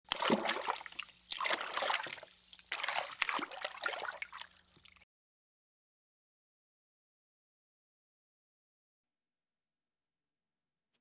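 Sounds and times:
water pouring and splashing: 0:00.0 - 0:05.0.

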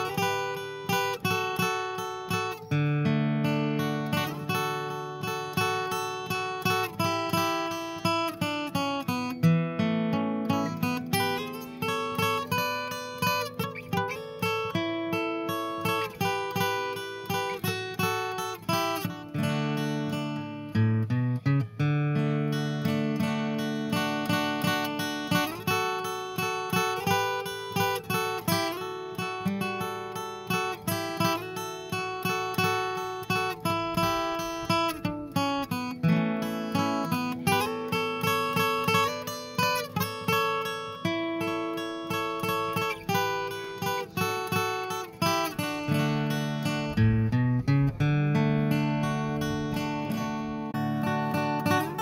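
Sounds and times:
acoustic guitar playing: 0:00.0 - 0:52.0.

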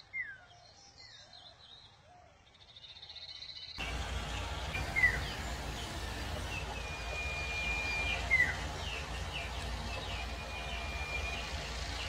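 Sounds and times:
songbird whistling and chirping: 0:00.0 - 0:03.8, 0:04.8 - 0:12.0.

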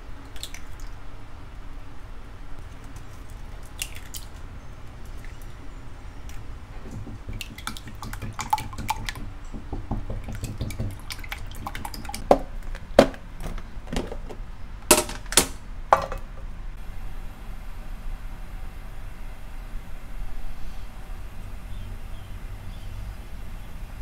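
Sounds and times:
kitchenware clinking and knocking: 0:06.8 - 0:16.4.

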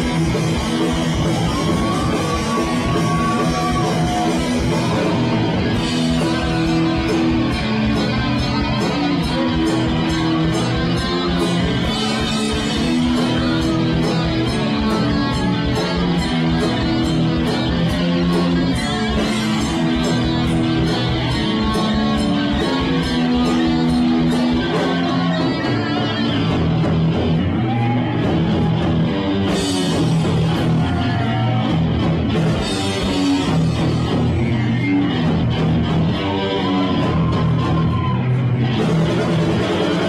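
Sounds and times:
heavy metal band playing: 0:00.0 - 0:40.0.

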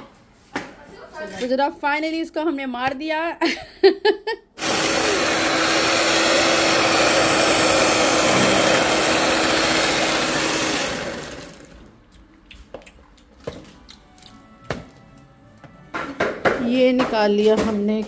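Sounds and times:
electric hand mixer running: 0:04.6 - 0:11.9.

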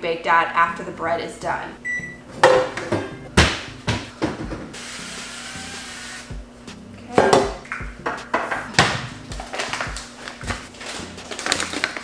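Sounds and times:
aerosol spray hissing: 0:04.8 - 0:06.3.

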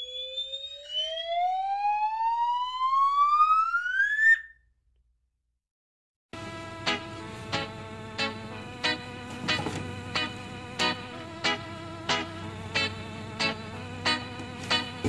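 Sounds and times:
rising whistle tone: 0:00.0 - 0:04.6.

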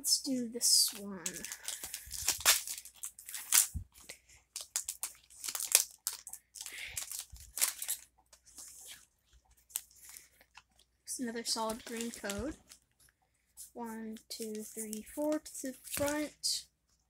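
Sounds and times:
foil wrapper crinkling and tearing: 0:00.7 - 0:10.9, 0:11.6 - 0:12.9, 0:14.3 - 0:16.3.

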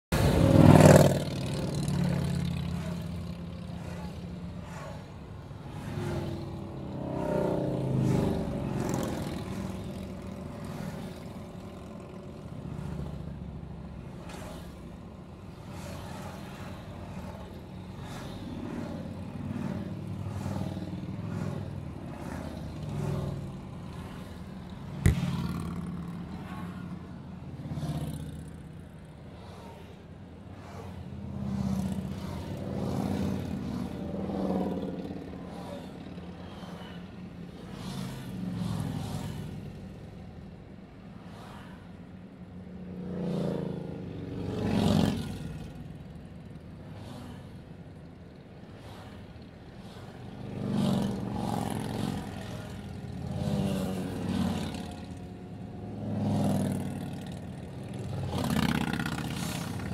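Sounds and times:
car road noise: 0:00.1 - 0:40.3
motorcycles passing: 0:00.2 - 0:40.5, 0:41.2 - 0:59.9.

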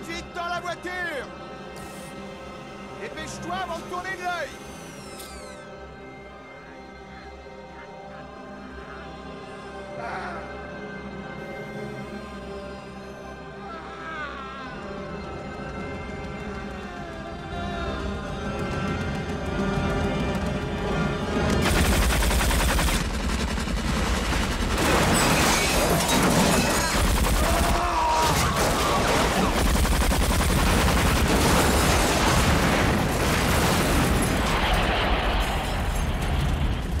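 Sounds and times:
tense music: 0:00.0 - 0:37.0
rapid machine-gun fire: 0:21.3 - 0:35.8
impacts and debris: 0:21.5 - 0:37.0
man screaming: 0:27.4 - 0:29.5.

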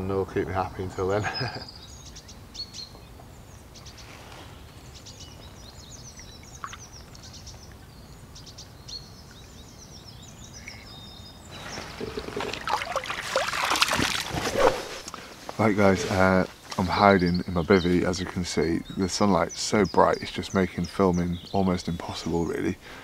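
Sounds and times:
birds singing: 0:00.0 - 0:23.0
faint outdoor hush: 0:00.0 - 0:23.0
water splashing and pouring: 0:11.6 - 0:15.0.

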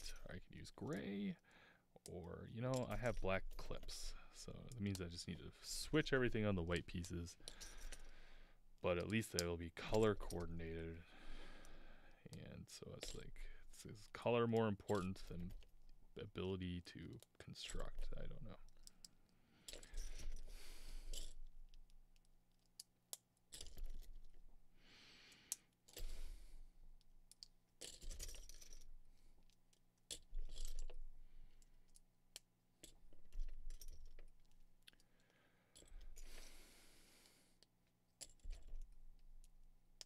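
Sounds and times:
plastic bricks clicking together: 0:27.2 - 0:28.9.

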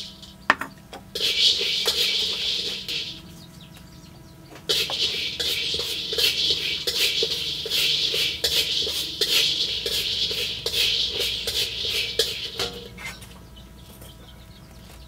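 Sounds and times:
spatula scraping a wok: 0:00.0 - 0:03.4, 0:04.6 - 0:13.3
peanuts rattling: 0:01.2 - 0:03.3, 0:04.7 - 0:12.6.

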